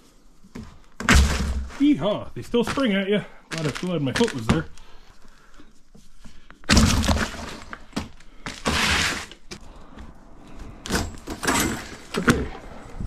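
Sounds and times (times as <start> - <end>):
rattling metal scrape: 10.8 - 12.5.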